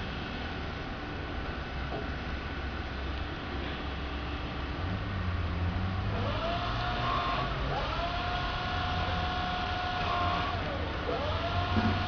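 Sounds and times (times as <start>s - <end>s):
low steady hum: 0.0s - 12.0s
electric forklift motor whining: 6.0s - 12.0s.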